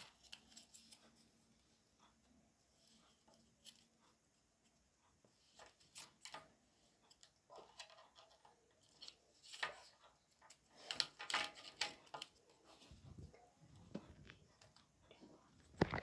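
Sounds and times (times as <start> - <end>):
wooden sticks clicking and tapping: 5.1 - 12.7.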